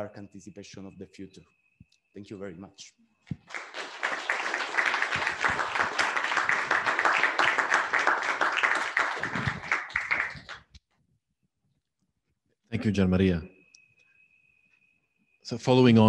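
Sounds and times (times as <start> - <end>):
audience applauding: 3.4 - 10.8.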